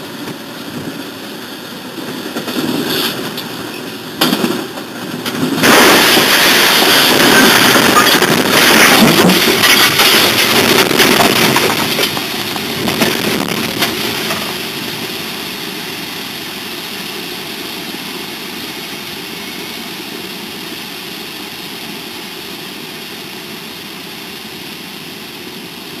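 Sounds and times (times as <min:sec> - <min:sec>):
locomotives crashing and grinding: 0:04.2 - 0:14.6
metal breaking cracks: 0:05.6 - 0:12.4.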